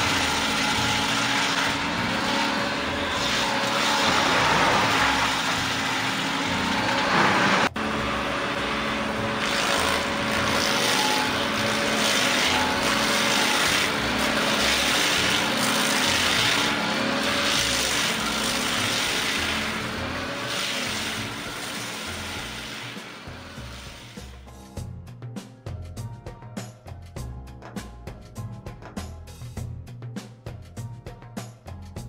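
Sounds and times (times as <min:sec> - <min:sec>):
stump grinder grinding stump: 0:00.0 - 0:24.5.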